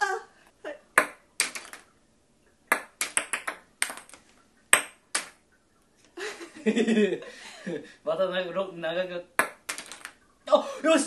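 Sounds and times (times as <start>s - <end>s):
plastic balls bouncing on tabletop: 0.9s - 1.9s, 2.7s - 5.4s, 9.4s - 10.2s
balls clattering into plastic grid: 1.0s - 1.9s, 2.7s - 5.4s, 9.4s - 10.2s.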